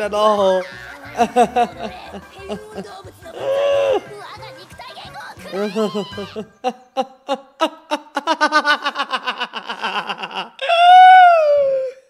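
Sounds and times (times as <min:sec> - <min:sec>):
man laughing hard: 0:01.2 - 0:02.8, 0:03.4 - 0:04.1, 0:05.6 - 0:11.8.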